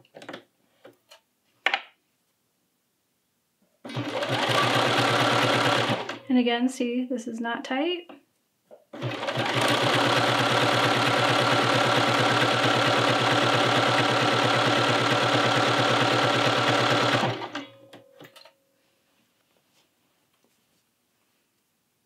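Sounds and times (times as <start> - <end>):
sewing machine stitching: 3.9 - 6.2, 8.9 - 17.7.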